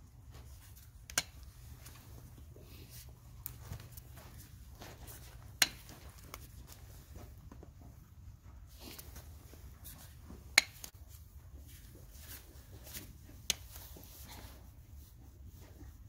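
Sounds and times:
hoof nippers snapping: 1.0 - 1.5.

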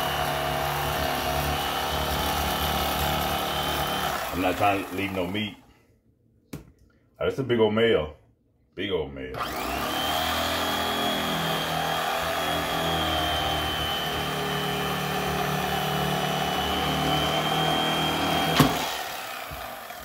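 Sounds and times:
electric knife whining: 0.0 - 5.4, 9.4 - 20.0.

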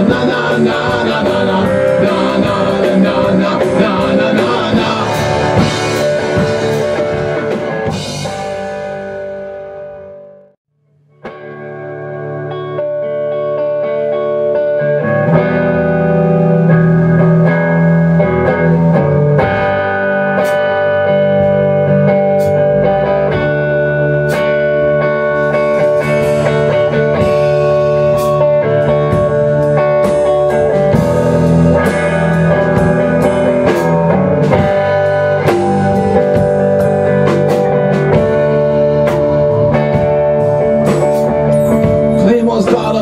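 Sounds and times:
drum kit steady beat: 0.0 - 10.1, 15.4 - 43.0
electric guitars sustained notes: 0.0 - 10.6, 11.3 - 43.0.

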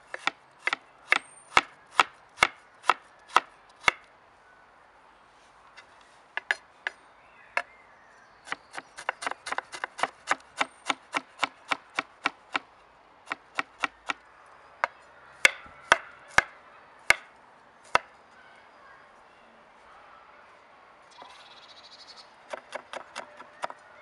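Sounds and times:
knife chopping on wooden board: 8.5 - 12.6.

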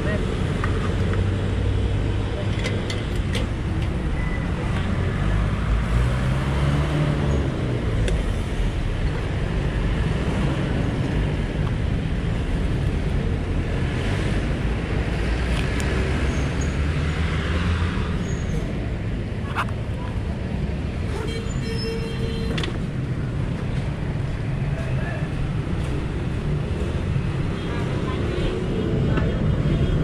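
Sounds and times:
traffic engines rumbling: 0.0 - 30.0.

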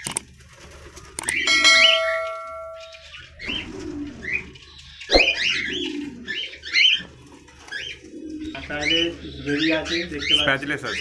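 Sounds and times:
low bird calls: 1.0 - 11.0
metallic clang: 1.5 - 3.1.

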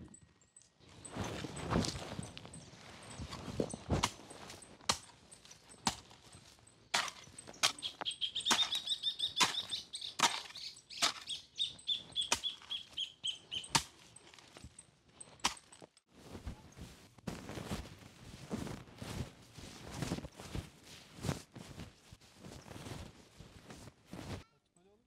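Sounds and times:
hoe chopping into dry soil: 3.3 - 6.3, 6.9 - 11.4
bird chirping: 7.2 - 13.8.

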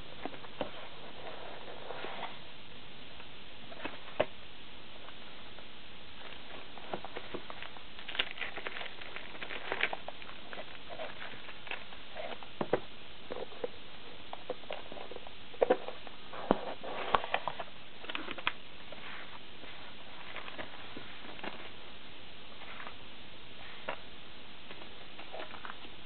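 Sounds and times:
steady hiss: 0.0 - 26.0
cardboard and plastic packaging handled: 6.2 - 23.0, 23.6 - 26.0.

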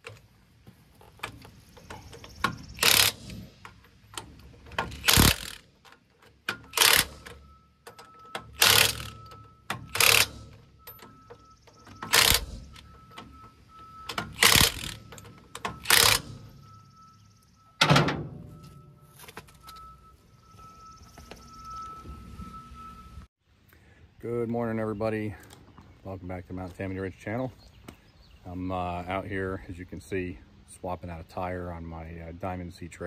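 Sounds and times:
impact wrench bursts: 1.1 - 13.4, 14.0 - 16.6.

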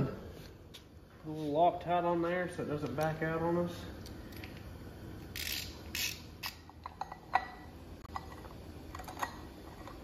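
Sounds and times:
socket ratchet clicking: 5.3 - 6.7.

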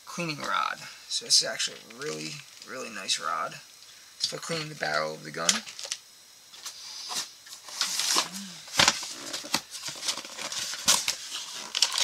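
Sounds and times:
packaging rustling: 7.5 - 12.0.

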